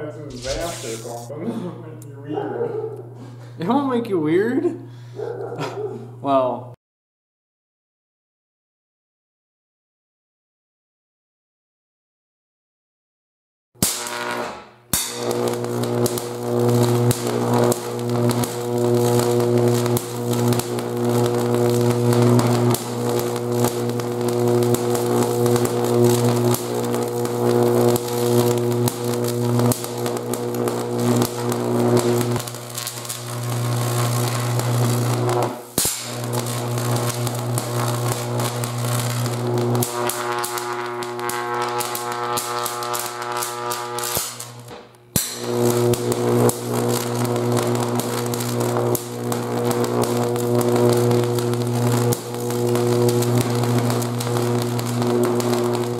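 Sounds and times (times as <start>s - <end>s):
high-voltage arc buzzing and crackling: 0.3s - 1.3s, 13.8s - 55.9s.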